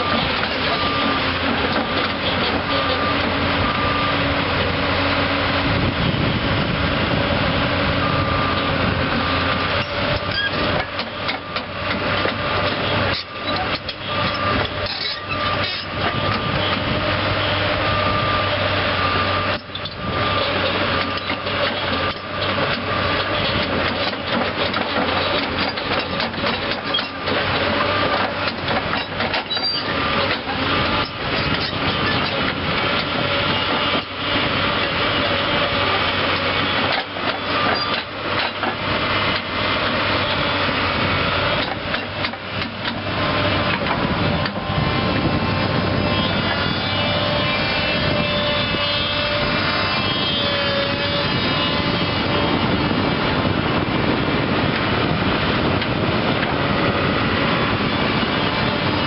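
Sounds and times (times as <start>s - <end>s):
diesel engine running: 0.0s - 59.0s
sharp knocks and clatter: 23.5s - 30.5s.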